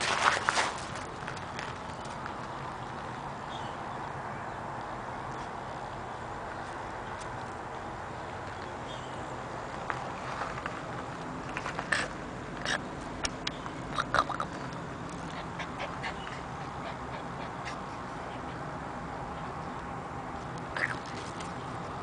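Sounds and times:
puppy grunts and squeaks: 11.8 - 12.9, 13.9 - 14.6, 15.2 - 18.1.

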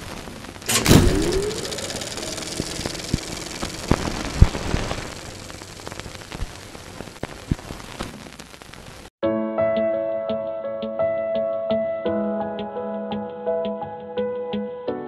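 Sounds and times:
static hiss with crackles: 0.0 - 9.1
soft instrumental music: 9.2 - 15.0.

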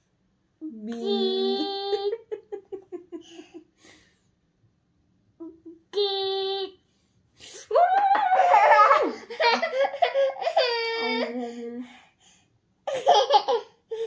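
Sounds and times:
woman's playful vocal sounds: 0.6 - 2.5, 5.4 - 6.7.

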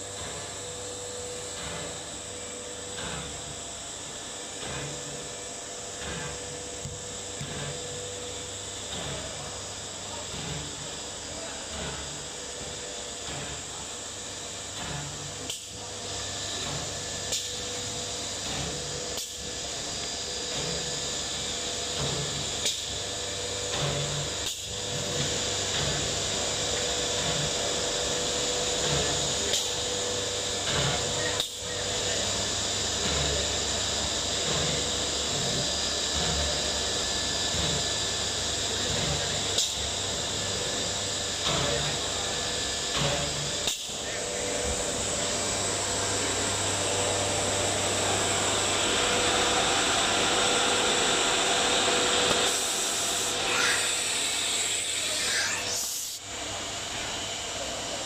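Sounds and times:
router spindle cutting wood: 50.4 - 56.2.

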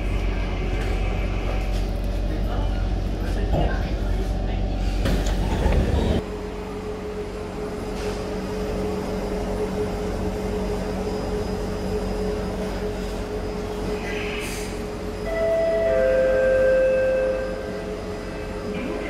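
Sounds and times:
train air-conditioning hum: 0.0 - 19.0
train doors sliding open: 4.9 - 6.2.

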